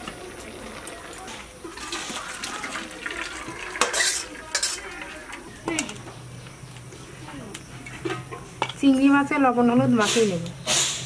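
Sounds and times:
water splashing into colander: 0.0 - 6.0
metal pots clanking: 1.3 - 6.2, 7.8 - 9.0.

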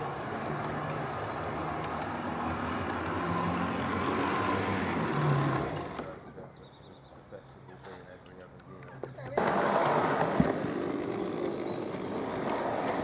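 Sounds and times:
model train running on track: 0.0 - 6.3.

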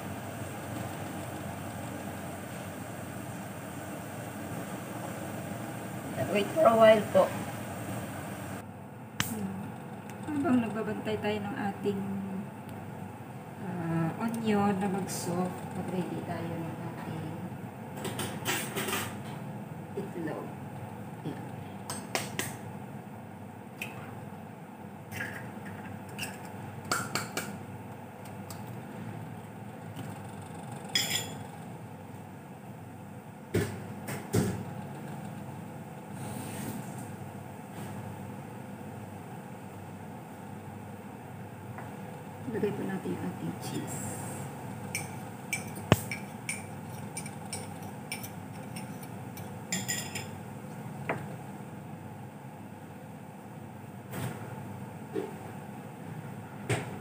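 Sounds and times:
gas burner hiss: 0.0 - 8.6.

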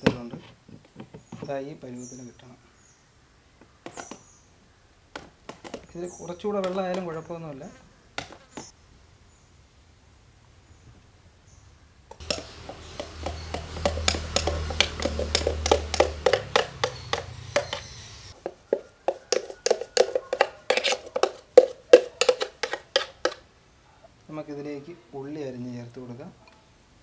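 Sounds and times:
spoon scraping steel jar: 12.2 - 18.0, 18.8 - 23.4.

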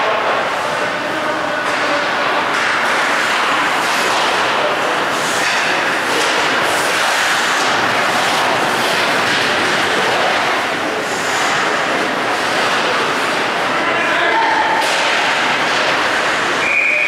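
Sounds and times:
steady rushing noise: 0.0 - 16.7
skate blades scraping ice: 5.2 - 10.5.

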